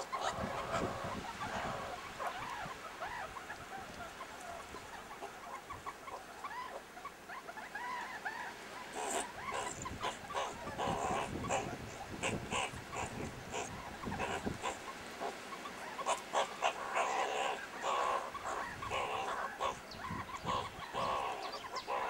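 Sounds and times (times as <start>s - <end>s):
meerkats chirping: 9.0s - 22.0s.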